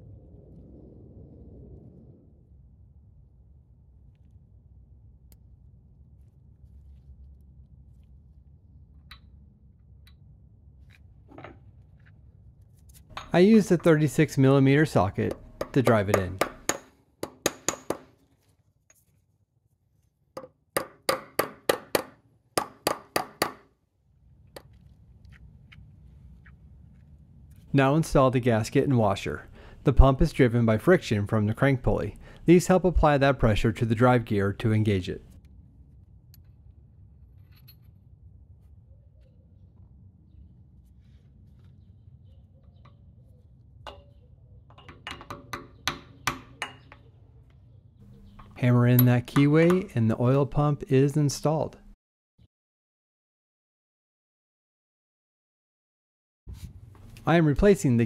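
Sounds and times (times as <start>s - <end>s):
hammer knocking on metal socket: 15.3s - 18.0s, 44.7s - 47.0s
faint steady hum: 24.4s - 44.2s.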